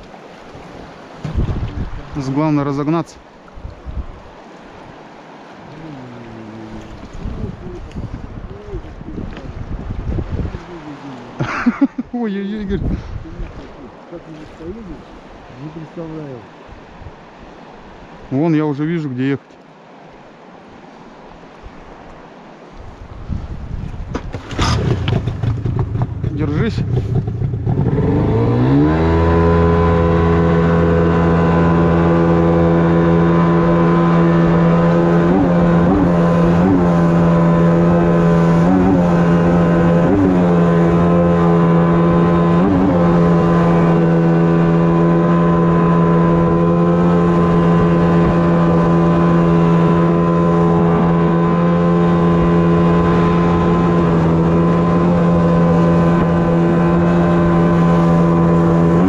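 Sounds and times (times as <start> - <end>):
outboard motor running: 0.0 - 11.9, 23.7 - 59.0.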